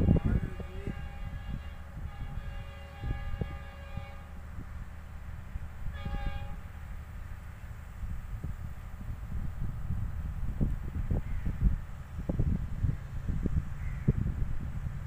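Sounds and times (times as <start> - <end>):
train horn blasts: 0.0 - 4.6, 5.8 - 6.8
low steady rumble: 0.0 - 15.0.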